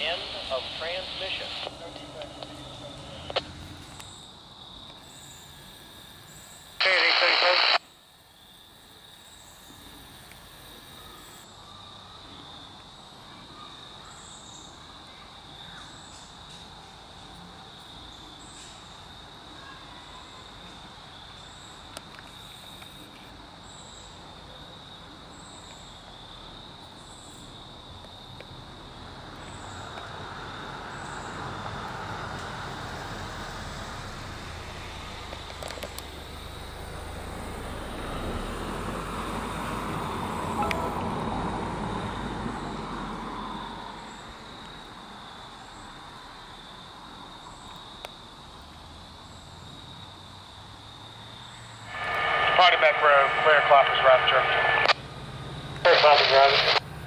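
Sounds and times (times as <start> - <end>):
vehicle rumble: 0.0 - 5.4, 27.5 - 57.0
insects chirring: 0.0 - 19.6, 20.4 - 57.0
high chirp: 40.6 - 41.4.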